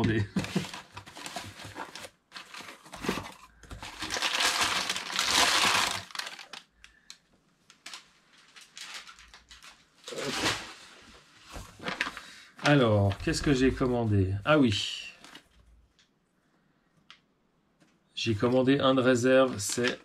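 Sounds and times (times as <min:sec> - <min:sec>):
packaging crinkling and rustling: 0:00.0 - 0:10.9, 0:11.5 - 0:13.8, 0:19.4 - 0:20.0.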